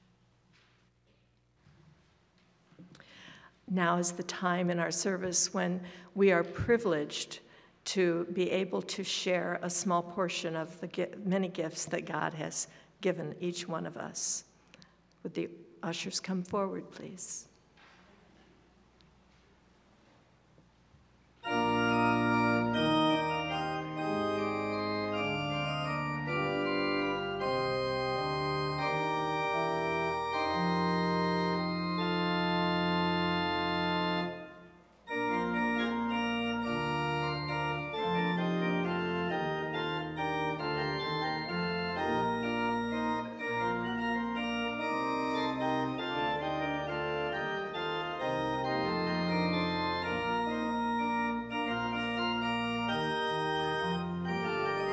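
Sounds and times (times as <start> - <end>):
organ playing held chords: 21.4 - 54.9.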